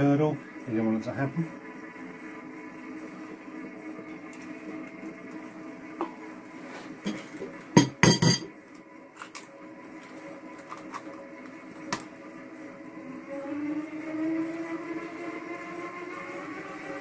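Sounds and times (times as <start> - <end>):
kitchenware clinking: 7.0 - 8.6.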